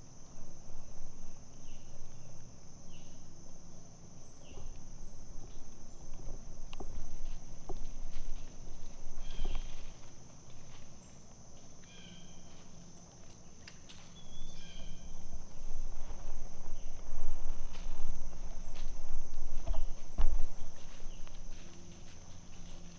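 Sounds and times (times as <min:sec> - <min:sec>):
crickets droning: 0:00.0 - 0:22.9
low rumble: 0:14.4 - 0:22.9.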